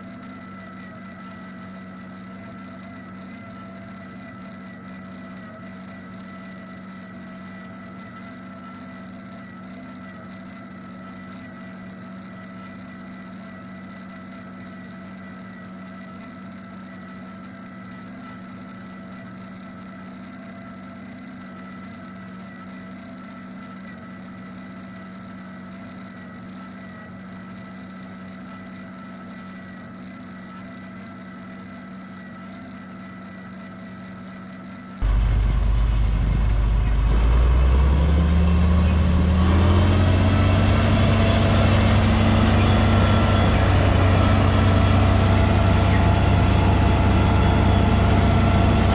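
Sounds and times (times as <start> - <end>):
forage harvester whining: 35.0 - 48.9
tractor diesel engine: 35.0 - 48.9.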